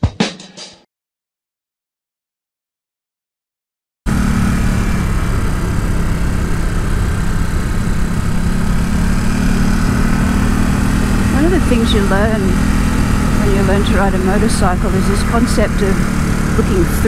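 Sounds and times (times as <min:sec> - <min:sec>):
motorcycle engine running: 0:04.1 - 0:17.0.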